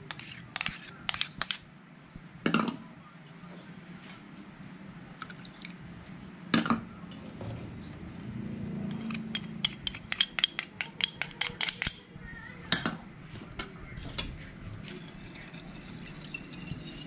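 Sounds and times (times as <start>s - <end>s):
metal spoon tapping plastic cup: 9.4s - 12.1s.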